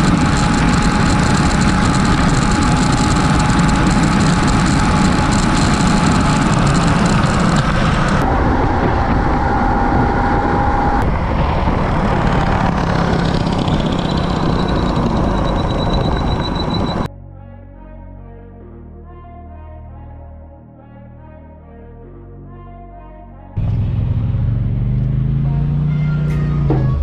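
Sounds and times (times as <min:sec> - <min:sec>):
thin motor whine: 0:00.0 - 0:17.1
wind rush over camera: 0:00.0 - 0:17.1.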